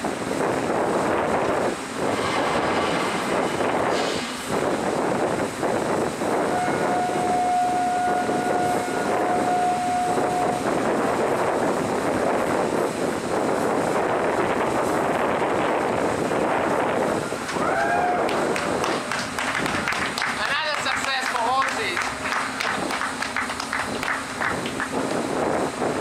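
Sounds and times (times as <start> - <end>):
wind: 0.0 - 26.0
machinery: 1.4 - 6.0
steady horn tone: 2.0 - 10.8.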